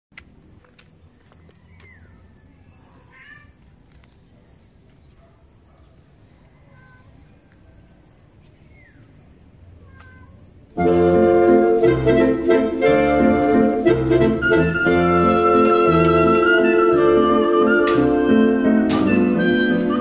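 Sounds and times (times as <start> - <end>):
bird calls and chirps: 0.7 - 9.2
music: 10.8 - 20.0.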